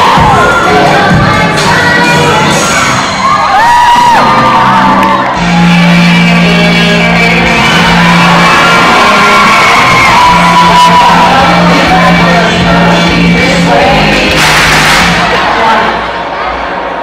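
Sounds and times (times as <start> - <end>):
audience shouting and whooping: 0.0 - 1.1, 2.5 - 6.0, 7.5 - 11.9
loud music over speakers: 0.0 - 16.9.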